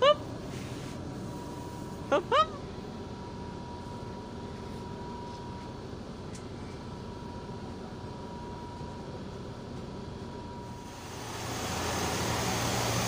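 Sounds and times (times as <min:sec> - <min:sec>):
bus cabin rumble: 0:00.0 - 0:13.0
ventilation hiss: 0:09.1 - 0:13.0.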